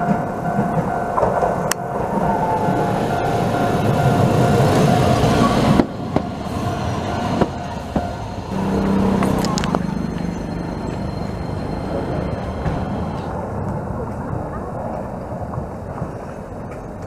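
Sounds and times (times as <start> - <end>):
level crossing warning bell: 0.0 - 13.4
streetcar running rumble: 0.0 - 17.0
streetcar wheels clicking over joints: 0.0 - 17.0.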